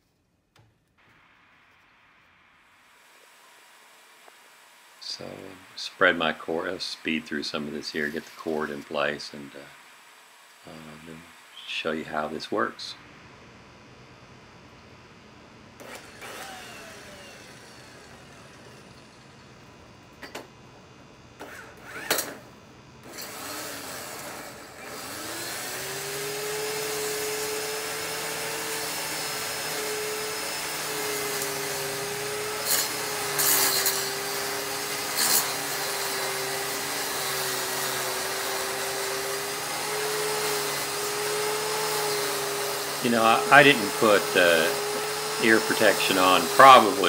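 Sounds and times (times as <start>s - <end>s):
electric edger motor humming: 15.8s - 19.5s, 21.4s - 47.0s.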